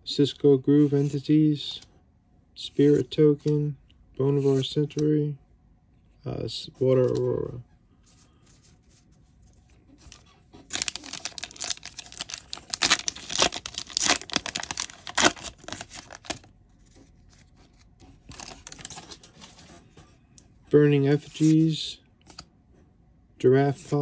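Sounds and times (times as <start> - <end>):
foil pack tearing and crinkling: 10.6 - 16.5.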